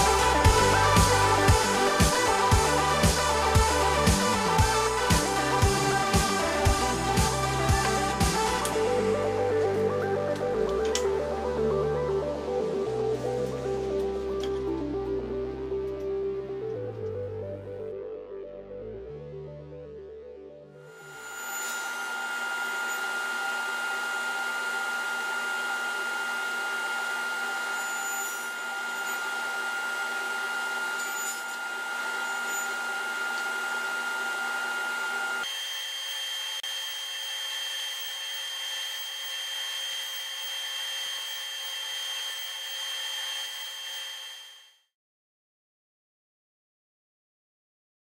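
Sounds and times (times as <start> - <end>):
saw cutting wooden board: 0.0 - 8.8, 21.0 - 44.6
table saw whine: 0.0 - 14.7, 20.8 - 44.8.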